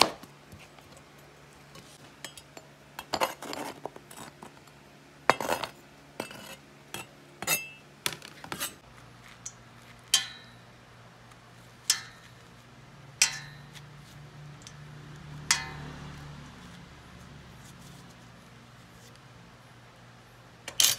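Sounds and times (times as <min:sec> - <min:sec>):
metal spoon clinking on colander: 0:07.0 - 0:07.8.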